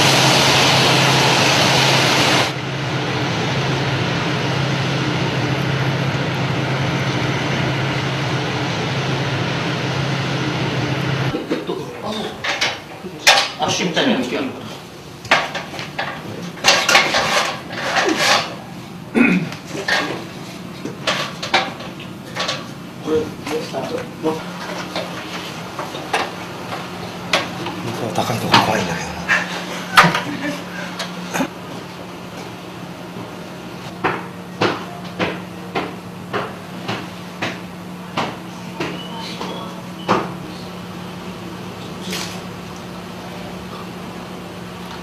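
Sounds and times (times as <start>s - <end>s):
steady low hum: 0.0s - 45.0s
ladder scraping: 14.7s - 18.9s, 19.6s - 31.5s.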